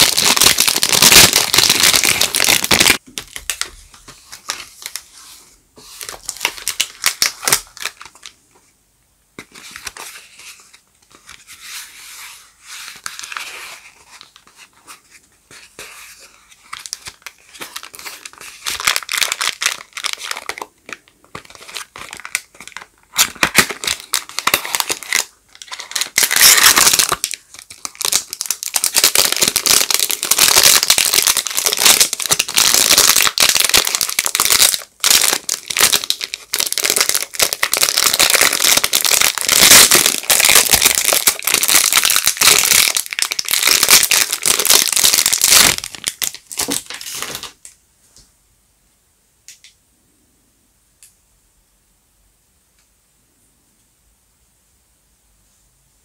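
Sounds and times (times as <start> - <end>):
wrapper crinkling and tearing: 0.0 - 5.0, 6.0 - 8.3, 16.4 - 47.6.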